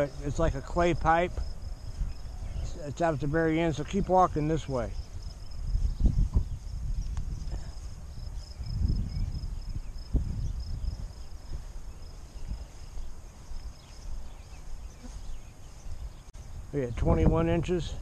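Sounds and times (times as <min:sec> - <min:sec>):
high insect trill: 0:00.0 - 0:18.0
microphone handling thuds: 0:05.2 - 0:08.0.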